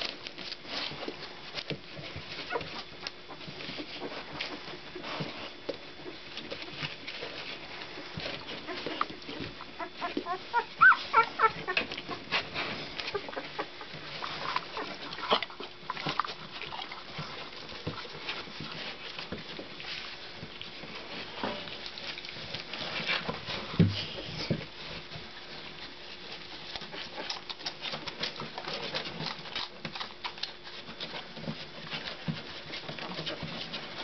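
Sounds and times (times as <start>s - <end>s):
puppies scuffling: 0.0s - 34.0s
puppies whimpering and squeaking: 2.2s - 4.7s, 7.0s - 19.6s.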